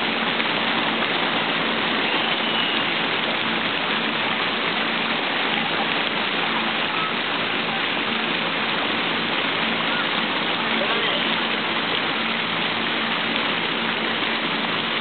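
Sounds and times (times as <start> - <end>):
water showering into pool: 0.0 - 15.0.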